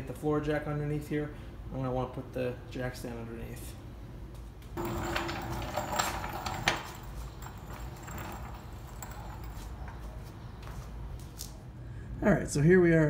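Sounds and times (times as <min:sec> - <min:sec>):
floor jack casters rumbling: 0:04.8 - 0:10.3.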